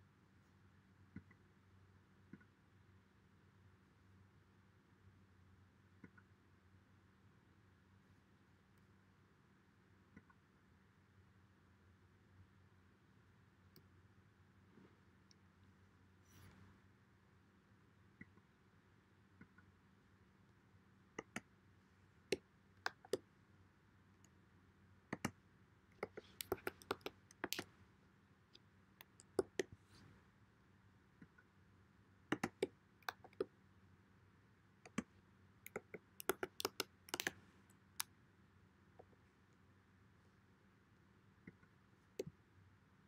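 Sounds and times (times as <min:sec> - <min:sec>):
keyboard key clicks: 0:26.0 - 0:27.6, 0:35.7 - 0:37.4.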